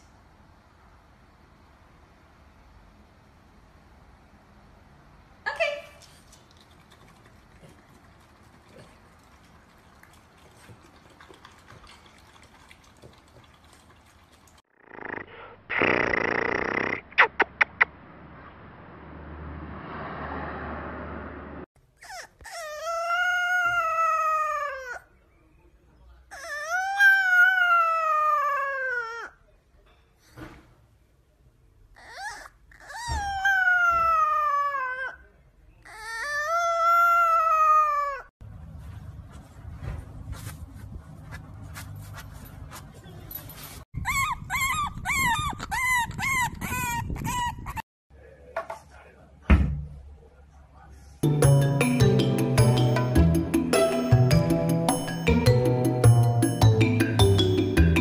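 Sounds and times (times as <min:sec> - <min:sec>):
dog howling: 0:26.4 - 0:29.3, 0:32.0 - 0:35.2.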